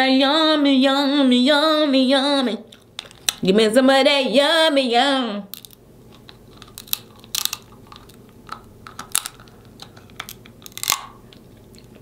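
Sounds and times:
crab shell cracking and crunching: 0:05.5 - 0:12.0.

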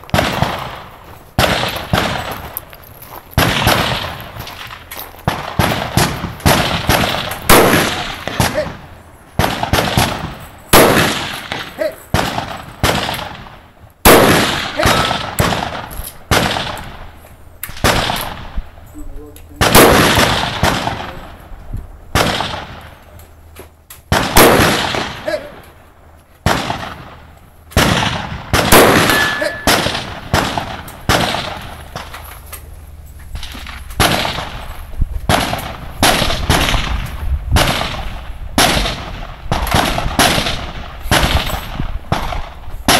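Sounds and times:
rifle shots: 0:00.1 - 0:02.5, 0:03.4 - 0:18.7, 0:19.6 - 0:21.4, 0:22.1 - 0:23.0, 0:24.1 - 0:25.7, 0:26.4 - 0:32.2, 0:33.4 - 0:42.9
ringing clang on steel: 0:29.0 - 0:29.8.

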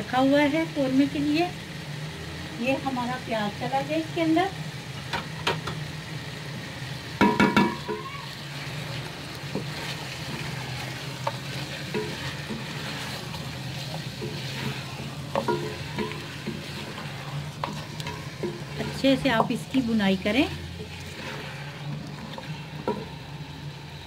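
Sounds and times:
chicken and onions sizzling in pot: 0:00.0 - 0:24.0
wooden spoon knocking on pot: 0:07.2 - 0:08.1, 0:15.3 - 0:16.8.

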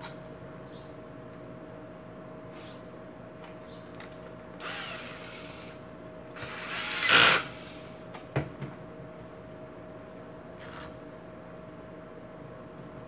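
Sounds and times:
electric screwdriver driving screws: 0:04.6 - 0:05.8, 0:06.4 - 0:07.7.

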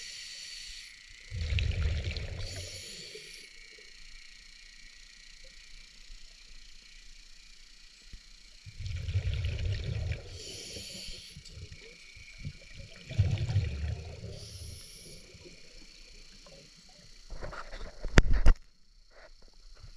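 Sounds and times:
regulator inhalation hiss: 0:00.0 - 0:04.3, 0:08.6 - 0:17.3
rumbling bubble bursts: 0:01.3 - 0:02.7, 0:08.7 - 0:10.5, 0:12.4 - 0:14.4.

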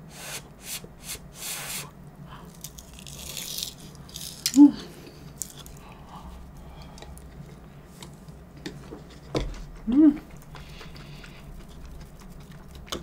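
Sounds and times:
crisp chewing: 0:02.4 - 0:04.6, 0:09.0 - 0:13.0
person humming: 0:04.6 - 0:05.0, 0:09.8 - 0:10.3.

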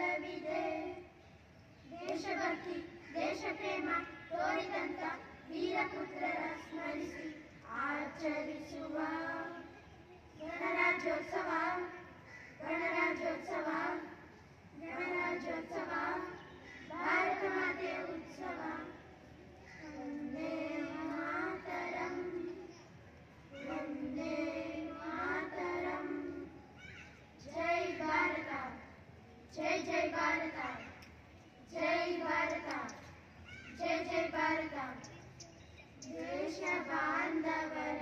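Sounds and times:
children singing into a microphone: 0:00.0 - 0:01.1, 0:01.9 - 0:09.6, 0:10.4 - 0:12.0, 0:12.6 - 0:19.0, 0:19.9 - 0:22.7, 0:23.5 - 0:26.5, 0:27.4 - 0:28.8, 0:29.5 - 0:30.9, 0:31.7 - 0:33.1, 0:33.8 - 0:35.2, 0:36.0 - 0:38.0.

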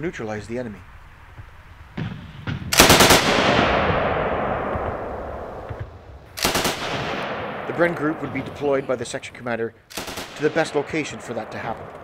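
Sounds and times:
machine gun bursts echoing: 0:02.8 - 0:04.8, 0:06.4 - 0:07.9, 0:09.9 - 0:11.5.

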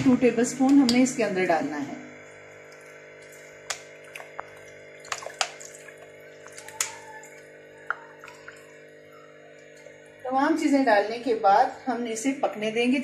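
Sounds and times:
steady low hum: 0:00.0 - 0:13.0
liquid sloshing: 0:02.3 - 0:10.3.

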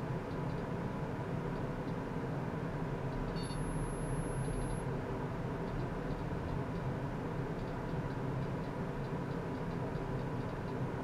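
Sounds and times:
low hum and hiss: 0:00.0 - 0:11.0
thin high whine: 0:03.3 - 0:04.8.

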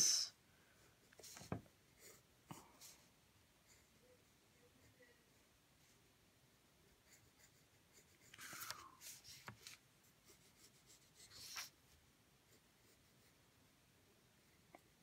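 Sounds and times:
pencil scratching on paper: 0:06.8 - 0:13.4.

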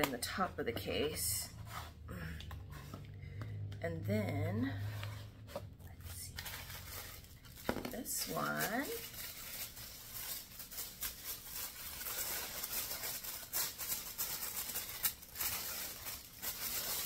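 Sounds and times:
tissue paper rustling and crinkling: 0:04.6 - 0:17.0.

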